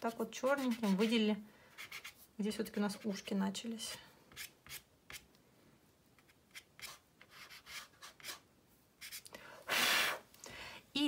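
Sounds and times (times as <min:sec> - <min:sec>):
pastel stick scratching on paper: 0:00.1 - 0:03.4, 0:06.2 - 0:09.2.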